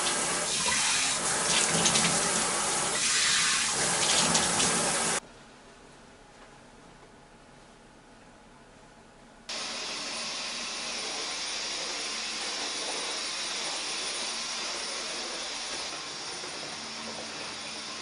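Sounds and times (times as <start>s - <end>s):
vacuum cleaner high whine: 9.5s - 18.0s.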